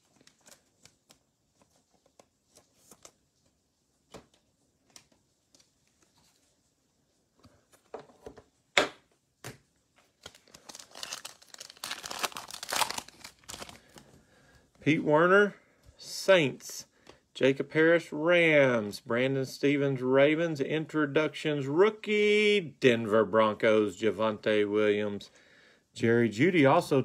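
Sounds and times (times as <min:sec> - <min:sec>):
foil pack crinkling and tearing: 0:10.2 - 0:14.1.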